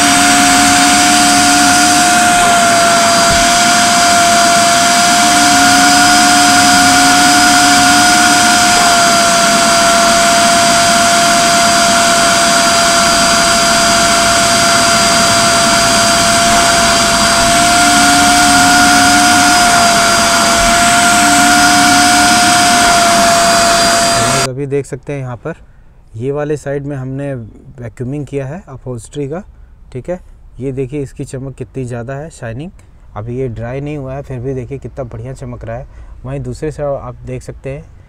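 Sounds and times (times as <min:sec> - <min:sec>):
vacuum cleaner motor whine: 0:00.0 - 0:24.5.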